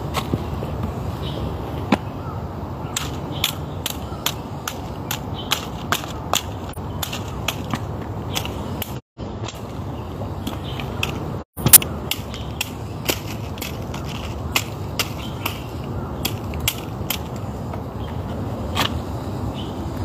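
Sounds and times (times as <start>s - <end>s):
footsteps on rough trail: 3.1s - 19.0s.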